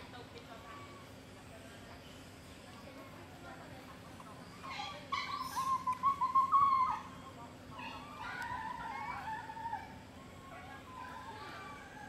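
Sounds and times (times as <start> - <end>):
macaque high-pitched calls: 4.3 - 12.0.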